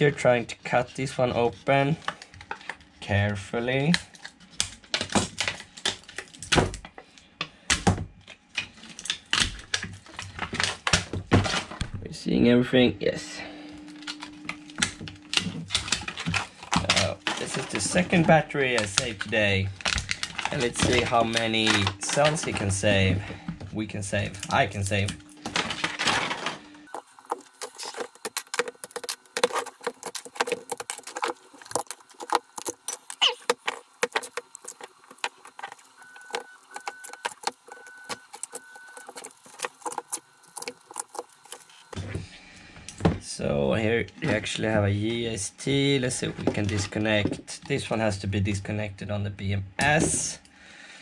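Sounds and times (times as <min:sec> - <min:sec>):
plastic sheets crinkling: 0:14.0 - 0:42.0
hands clicking plastic battery modules: 0:26.9 - 0:41.9.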